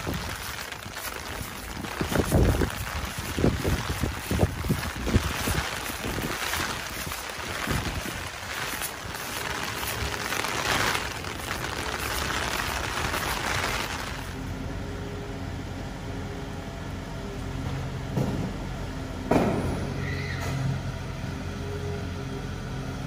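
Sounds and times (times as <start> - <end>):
rain hissing on an umbrella: 0.0 - 14.5
truck engine running: 0.0 - 18.0.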